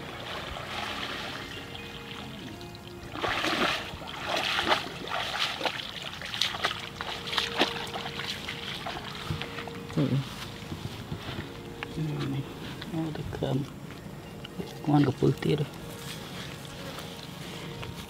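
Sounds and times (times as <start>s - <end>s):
water sloshing and splashing: 0.0s - 13.9s
soft background music: 0.0s - 18.0s
water pouring and dripping: 2.1s - 9.6s.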